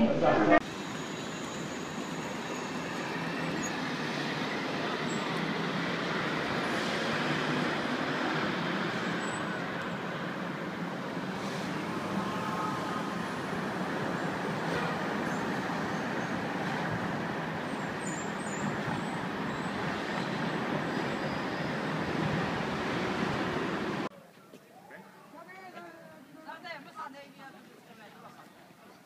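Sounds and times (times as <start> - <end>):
road traffic passing: 0.5 - 24.1.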